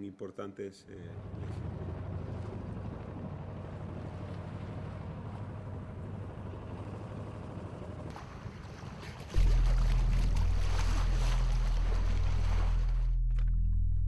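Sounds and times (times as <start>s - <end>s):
wind: 0.0s - 13.6s
boat engine running: 1.0s - 14.0s
water noise: 1.0s - 14.0s
loud low rumble: 9.3s - 14.0s.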